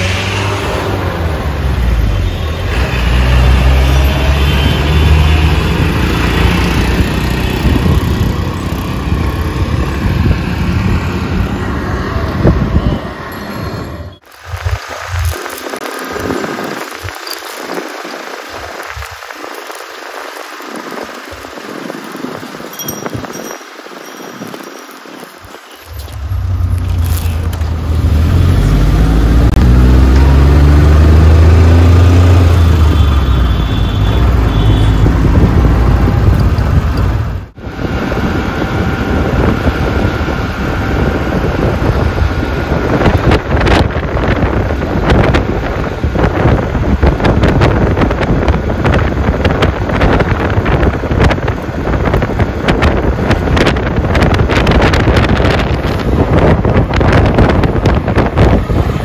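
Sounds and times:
vehicle engine speeding up: 0.0s - 2.1s, 2.7s - 17.2s, 26.4s - 59.0s
road traffic: 0.0s - 59.0s
wind buffeting microphone: 4.6s - 26.2s, 34.2s - 59.0s.

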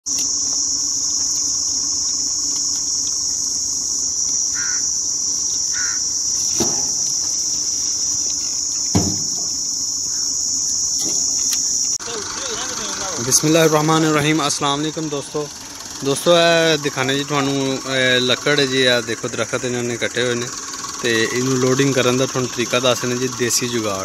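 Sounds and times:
insects chirring: 0.0s - 24.0s
sharp knocks: 6.5s - 7.0s, 8.9s - 9.4s.

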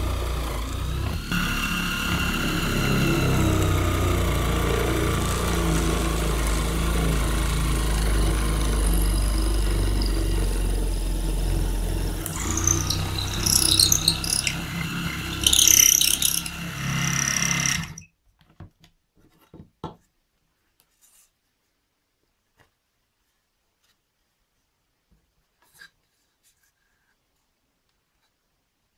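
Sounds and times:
drill press motor running: 0.0s - 18.0s
high squealing and scraping: 0.6s - 18.1s.

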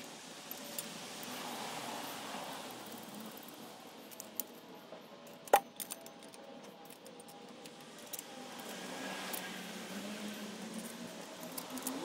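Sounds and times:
small metal clinks: 2.9s - 9.5s.

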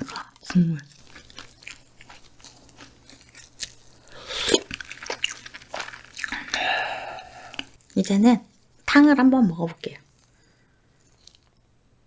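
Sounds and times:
chewing with wet mouth clicks: 0.0s - 6.6s, 7.2s - 8.2s, 11.0s - 11.6s.

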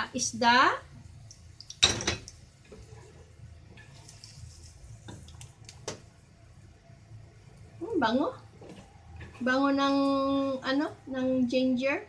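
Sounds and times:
sizzling in hot oil: 0.4s - 5.8s.

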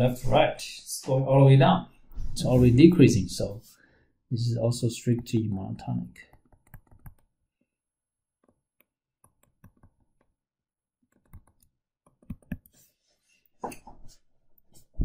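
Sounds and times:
stylus tapping on tablet: 6.3s - 7.3s, 8.4s - 10.3s, 11.1s - 12.8s.

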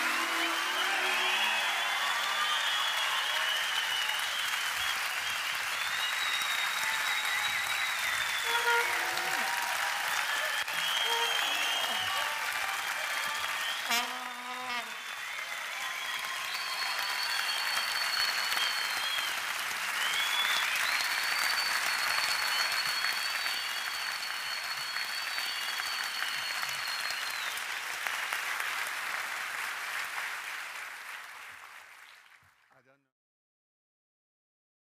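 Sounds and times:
audience applauding: 0.0s - 32.9s
high steady whistles: 0.1s - 9.5s, 10.1s - 12.2s, 15.0s - 19.4s, 20.0s - 27.6s.

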